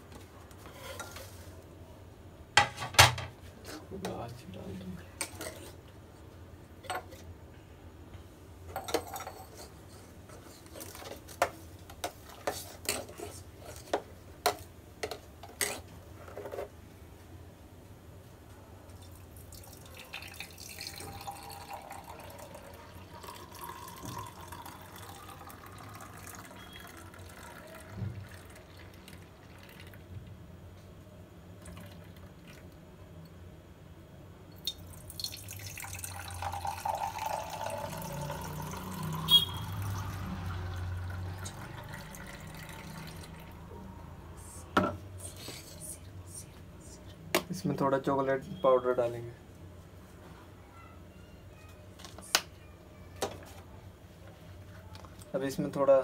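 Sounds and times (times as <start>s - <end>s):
steel kitchenware clinking: 8.7s - 11.1s
milkshake pouring into glass: 19.0s - 30.3s, 31.6s - 32.8s, 34.6s - 44.6s.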